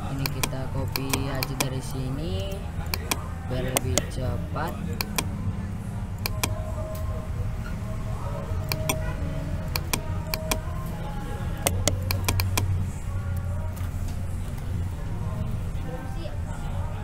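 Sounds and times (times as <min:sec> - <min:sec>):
key presses: 0:00.0 - 0:05.3, 0:06.2 - 0:06.6, 0:08.6 - 0:10.7, 0:11.6 - 0:12.8
low background hum: 0:00.0 - 0:17.0
computer mouse clicks: 0:00.1 - 0:01.8, 0:02.8 - 0:05.3, 0:06.2 - 0:06.6, 0:08.6 - 0:09.1, 0:09.7 - 0:10.7, 0:11.6 - 0:12.8.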